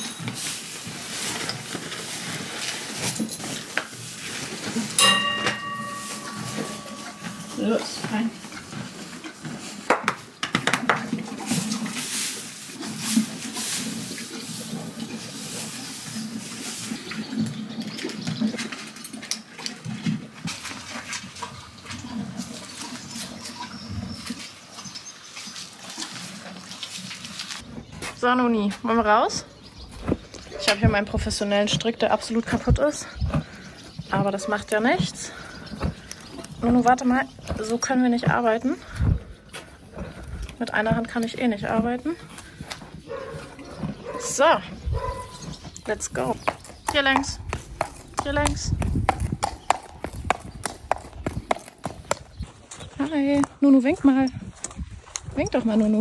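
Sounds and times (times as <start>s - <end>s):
horse munching feed: 0.0s - 5.0s, 6.0s - 27.9s
straw rustling: 0.0s - 9.9s, 25.2s - 27.7s
horse snuffling: 0.0s - 10.3s, 10.9s - 17.7s
short ringing tone: 5.0s - 7.6s.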